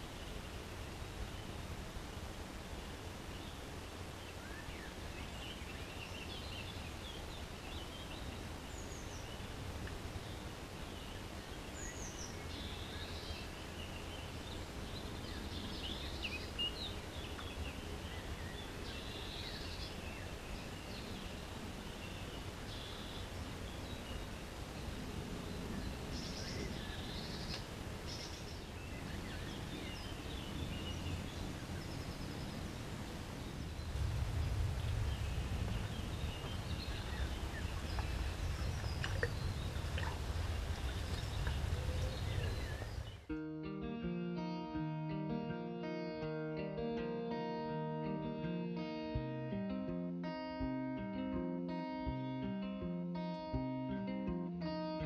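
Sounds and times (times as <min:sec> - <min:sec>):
small birds chirping: 0:03.0 - 0:43.4
low background rumble: 0:28.8 - 0:43.3.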